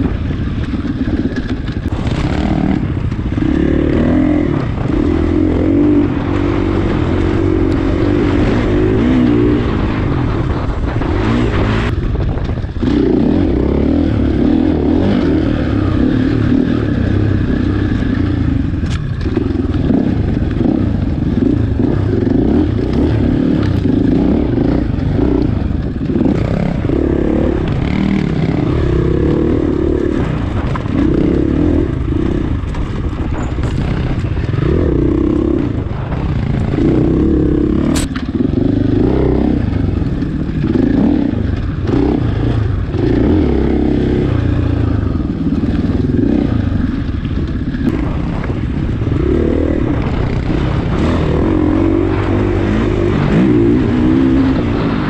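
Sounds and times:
bike rattling over terrain: 0.0 - 55.0
dirt bike engine revving: 0.0 - 55.0.

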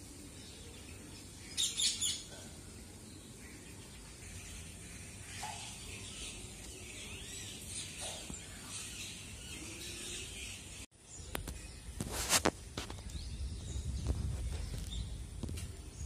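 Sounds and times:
sparrows chirping: 0.0 - 16.0.

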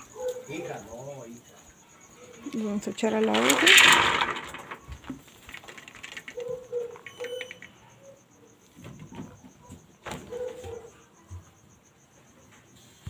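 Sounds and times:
dry beans clicking and rattling: 2.4 - 7.9.

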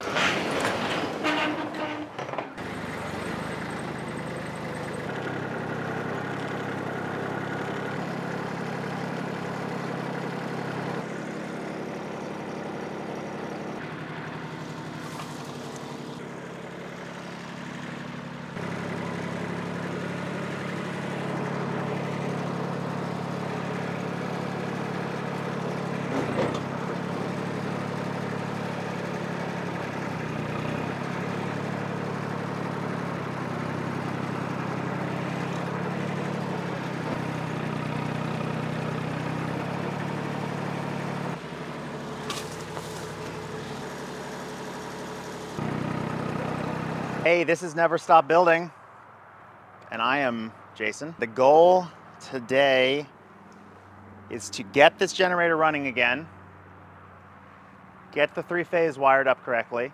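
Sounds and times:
garage door rattling up: 0.0 - 4.8
tractor engine running: 0.0 - 59.9.

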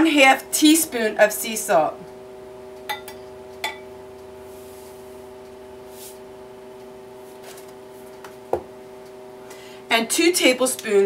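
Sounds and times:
steady multi-tone hum: 0.0 - 11.0.

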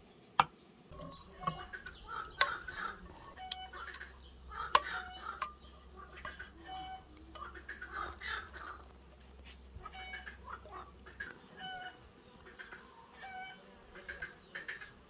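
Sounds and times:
chickens clucking: 0.0 - 15.0.

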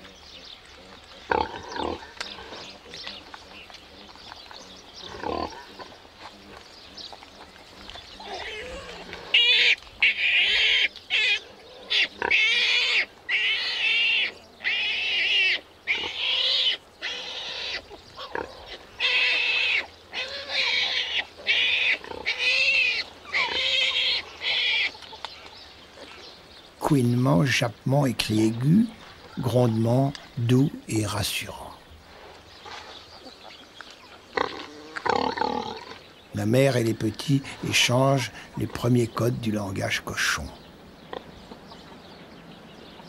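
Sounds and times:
piglets squealing: 8.2 - 25.0.

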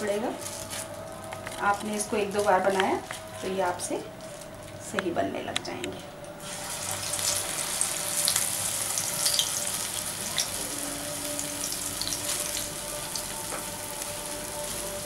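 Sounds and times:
batter sizzling in hot oil: 6.4 - 15.0.

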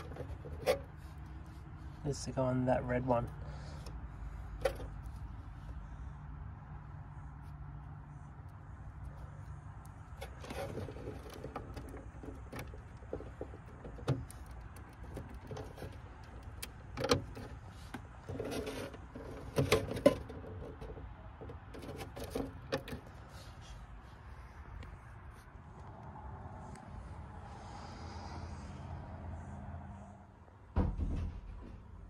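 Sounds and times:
wiring rustling: 0.0 - 2.2, 9.2 - 23.3.

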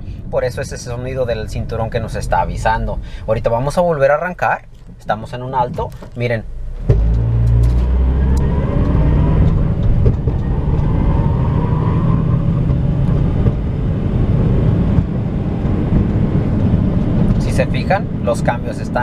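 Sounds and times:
faint rising whine: 6.2 - 19.0
car engine pulling away: 6.4 - 19.0.

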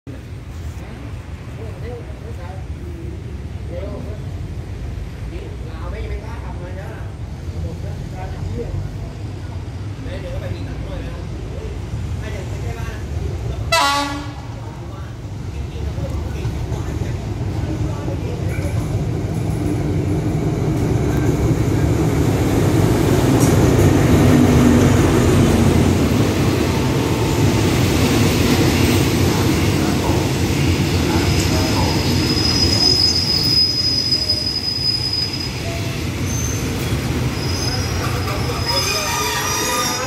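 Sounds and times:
train rumbling past: 0.1 - 40.0
high brake squeal: 32.2 - 40.0.

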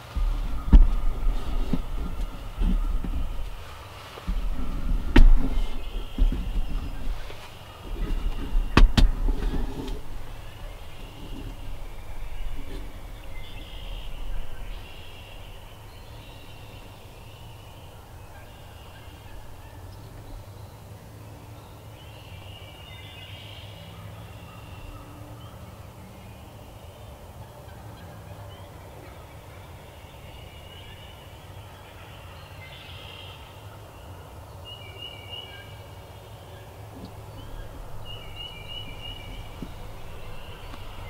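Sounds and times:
low rumble: 0.0 - 20.8, 37.0 - 41.0.

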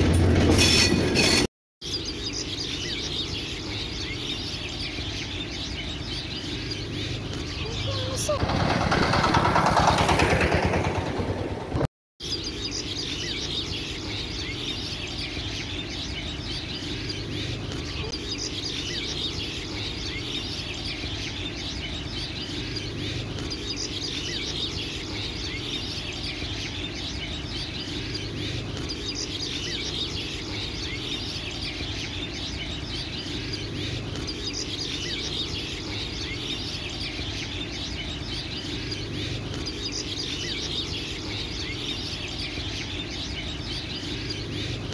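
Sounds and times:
small birds chirping: 1.8 - 11.1, 11.8 - 44.9
road traffic: 3.3 - 11.9.

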